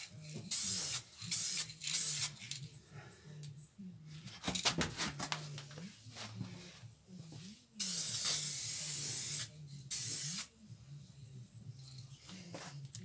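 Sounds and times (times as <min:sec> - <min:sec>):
aerosol spray hiss: 0:00.5 - 0:02.4, 0:07.8 - 0:10.5.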